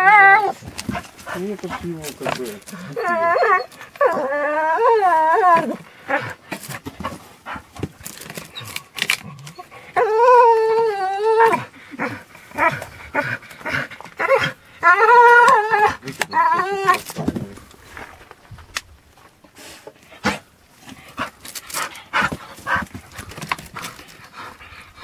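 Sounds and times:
dog whining: 0:00.0 - 0:01.0, 0:02.2 - 0:06.4, 0:08.4 - 0:17.2
claws scrabbling on rock: 0:00.6 - 0:03.2, 0:06.5 - 0:09.6, 0:21.3 - 0:24.6.

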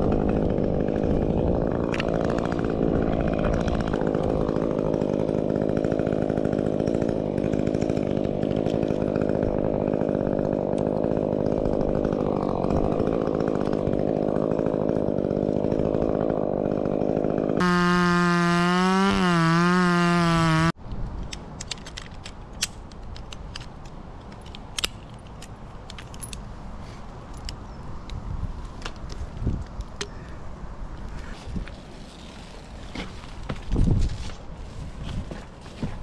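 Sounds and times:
chainsaw running: 0:00.0 - 0:20.8
metal climbing hardware clinking: 0:21.6 - 0:26.5.

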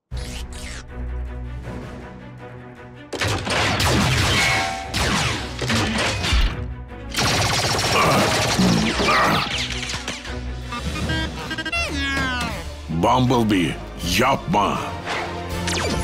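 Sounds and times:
background music: 0:00.1 - 0:16.0
blaster fire: 0:07.1 - 0:09.1.

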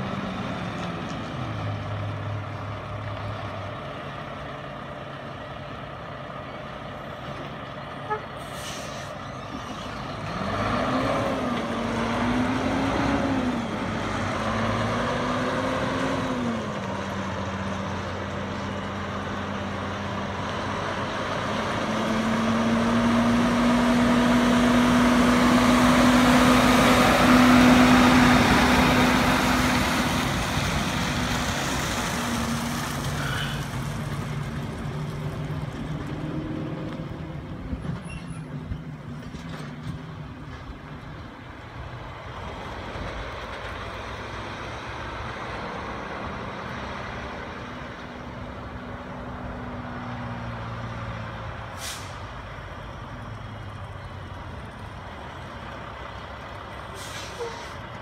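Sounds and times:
truck engine running: 0:51.0 - 0:58.0.

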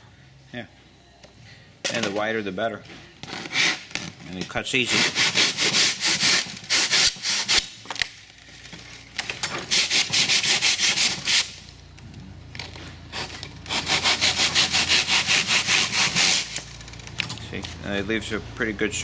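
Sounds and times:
saw blade cutting foam: 0:03.3 - 0:03.9, 0:04.8 - 0:07.7, 0:09.6 - 0:11.6, 0:13.1 - 0:16.6.

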